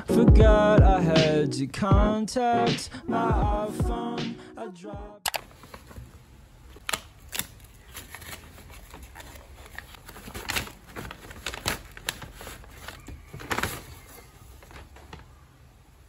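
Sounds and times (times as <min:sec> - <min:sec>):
paper bags rustling and crinkling: 0:05.4 - 0:15.6.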